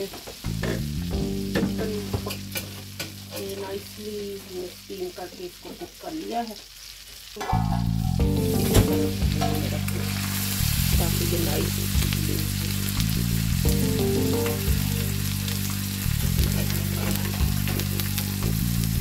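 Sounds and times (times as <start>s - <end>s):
butter sizzling on a griddle: 0.0s - 7.9s, 8.5s - 19.0s.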